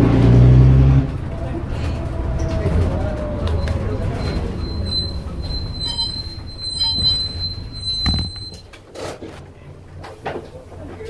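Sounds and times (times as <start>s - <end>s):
diesel engine rumble: 0.0s - 11.0s
bus brakes squealing: 1.1s - 9.2s.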